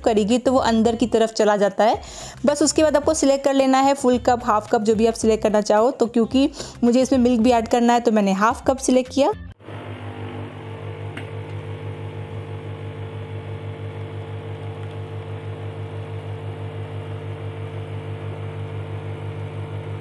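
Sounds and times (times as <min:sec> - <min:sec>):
coffee machine pump buzzing: 0:09.6 - 0:20.0.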